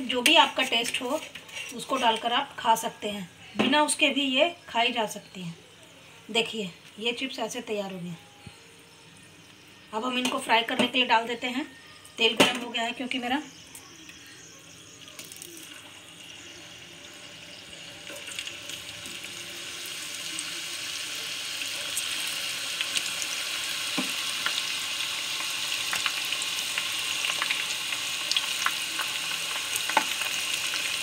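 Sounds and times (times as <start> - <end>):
banana slices sizzling in oil: 0.0 - 3.0, 12.2 - 31.0.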